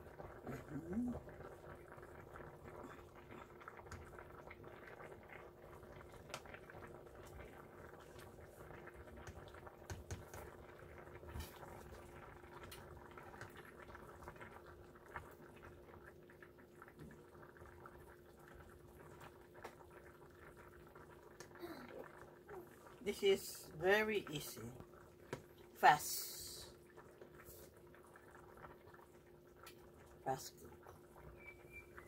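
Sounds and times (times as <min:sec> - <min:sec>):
broth bubbling in a pot: 0:00.0 - 0:32.0.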